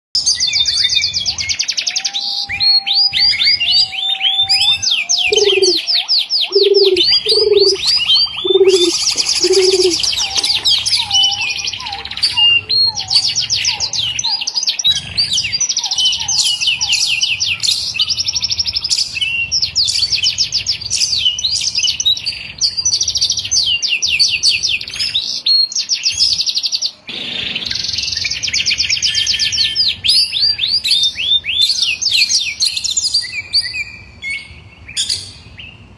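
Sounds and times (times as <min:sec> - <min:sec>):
birds chirping and singing: 0:00.2 - 0:35.9
bird low notes: 0:05.2 - 0:05.8, 0:06.4 - 0:12.4.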